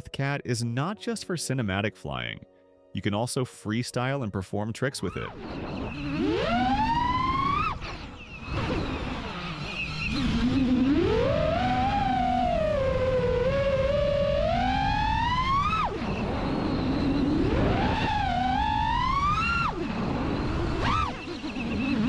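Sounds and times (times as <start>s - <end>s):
drone motors whining: 5.3s - 22.0s.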